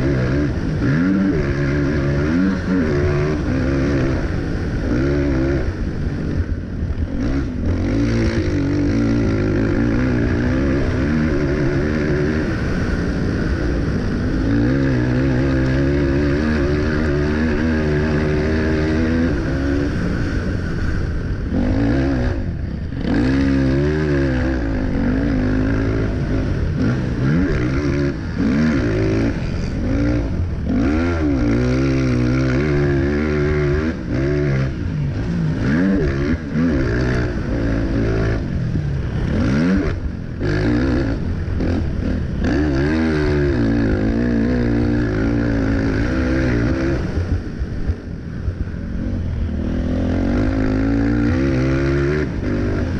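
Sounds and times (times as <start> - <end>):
quad engine revving: 0.0 - 52.9.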